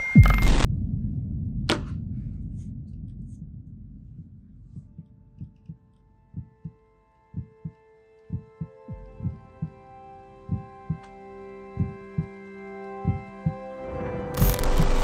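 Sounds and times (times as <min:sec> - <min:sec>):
low rumble: 0:00.2 - 0:06.7
heartbeat thumps: 0:00.2 - 0:09.8, 0:10.4 - 0:11.1, 0:11.7 - 0:12.4, 0:13.0 - 0:13.6
held musical chord: 0:06.1 - 0:14.4.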